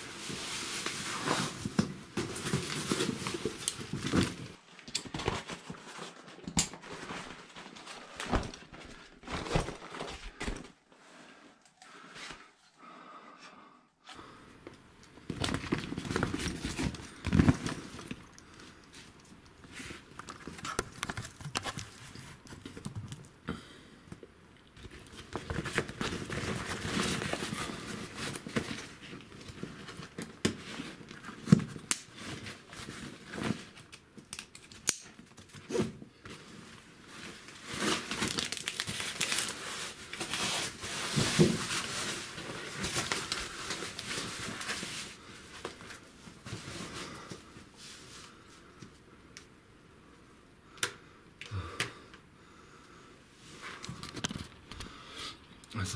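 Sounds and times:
clothing and gear rustling: 0.0 - 4.6, 15.2 - 22.6, 39.1 - 48.8.

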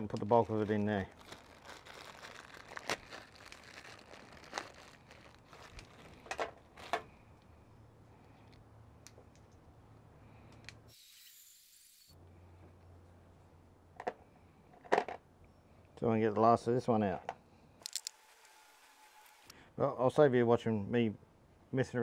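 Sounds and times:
plastic bag crinkling: 0.0 - 7.1
plastic bottle being handled: 0.0 - 7.1.

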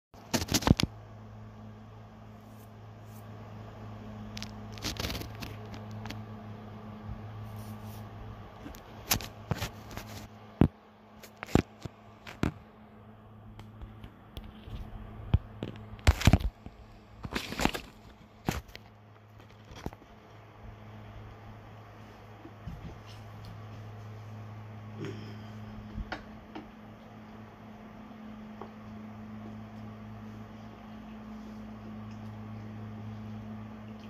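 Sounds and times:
low steady hum: 0.2 - 34.0
fingers rubbing on phone: 7.4 - 8.2.

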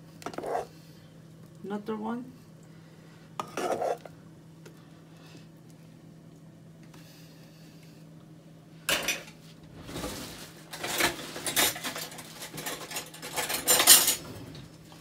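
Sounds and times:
metal utensil scraping pot: 3.4 - 4.1.

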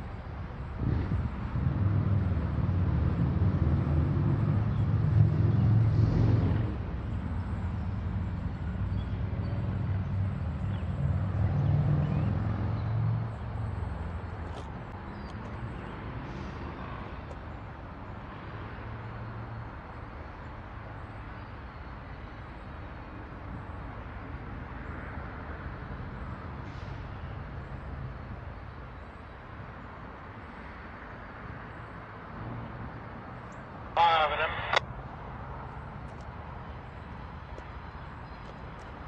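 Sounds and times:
locomotive engine rumble: 34.0 - 34.8.

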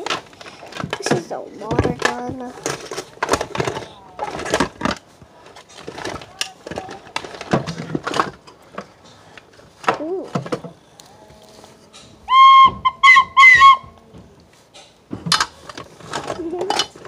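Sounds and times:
rustling and handling knocks: 0.0 - 10.9, 11.5 - 17.0
plastic toy whistle blasts: 12.3 - 13.9.

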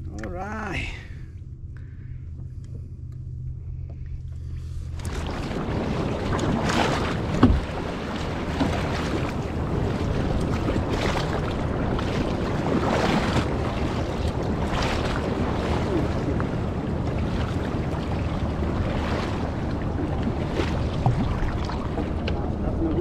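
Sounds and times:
water washing along hull: 3.6 - 23.0
paddle splashes: 4.9 - 23.0
wind buffeting microphone: 5.0 - 23.0.

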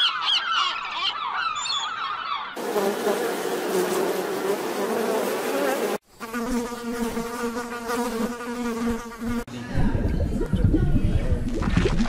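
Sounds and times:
bee buzzing: 2.6 - 9.5.

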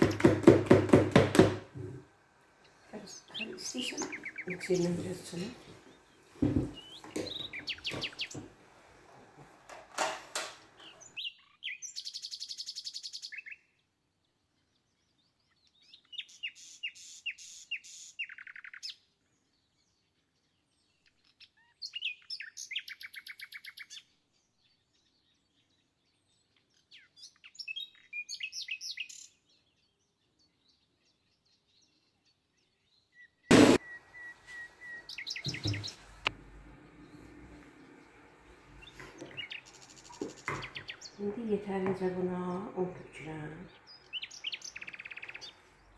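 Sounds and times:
sharp loud knock: 0.0 - 1.7, 33.5 - 33.9
songbird chirping and trilling: 1.8 - 8.6, 10.6 - 45.9.

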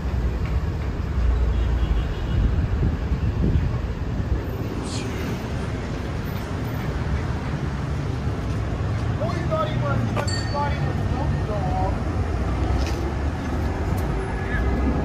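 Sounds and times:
traffic rumble: 0.0 - 15.0
wind on microphone: 2.4 - 4.4.

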